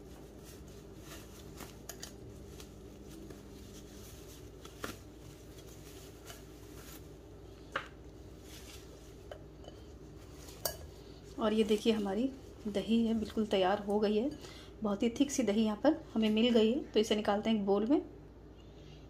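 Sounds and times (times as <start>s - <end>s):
cloth rustling and clicks: 0.0s - 9.4s
steady low hum: 0.0s - 19.0s.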